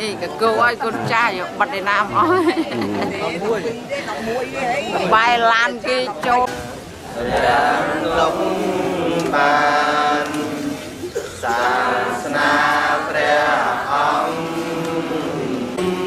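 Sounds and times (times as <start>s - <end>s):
group chanting in unison: 7.0s - 16.0s.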